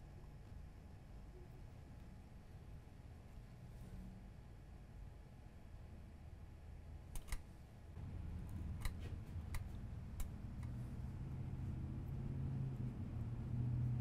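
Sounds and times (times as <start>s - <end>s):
low hum: 7.8s - 14.0s.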